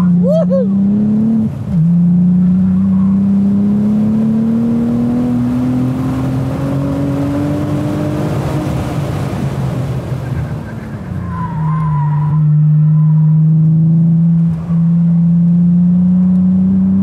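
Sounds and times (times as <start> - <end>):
car engine accelerating hard: 0.0 - 17.0.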